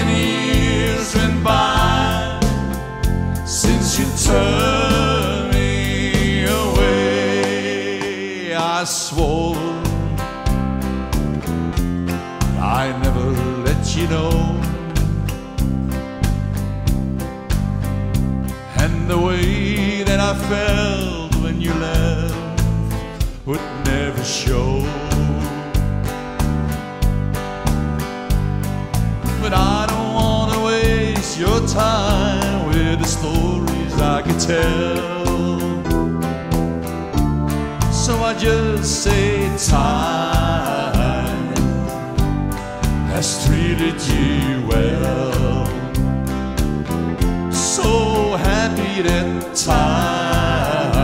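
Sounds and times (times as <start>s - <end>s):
man singing: 0.0s - 10.3s, 12.4s - 15.2s, 18.7s - 25.8s, 29.3s - 36.1s, 37.8s - 42.4s, 43.0s - 46.1s, 47.4s - 51.0s
country band playing: 0.0s - 51.0s.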